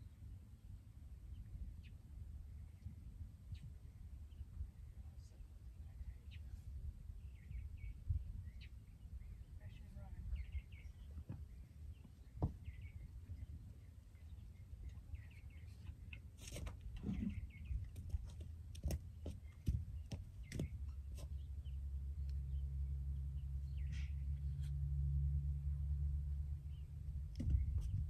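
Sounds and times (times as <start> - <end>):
steady low rumble: 0.0 - 28.0
faint bird chirps: 1.3 - 16.2.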